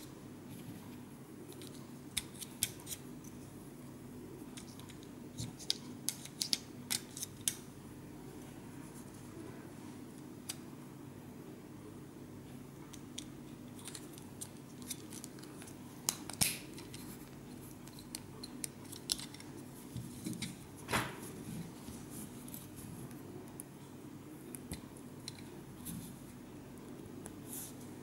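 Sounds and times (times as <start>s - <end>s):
plastic parts clicking and scraping: 1.5s - 3.0s, 12.9s - 20.6s.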